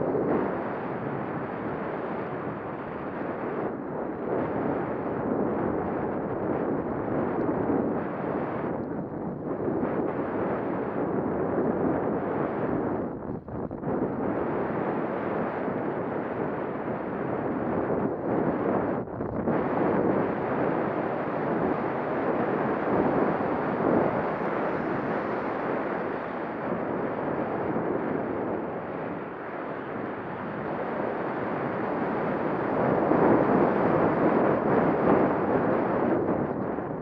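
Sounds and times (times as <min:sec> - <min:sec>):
wind rushing over microphone: 0:00.0 - 0:37.0.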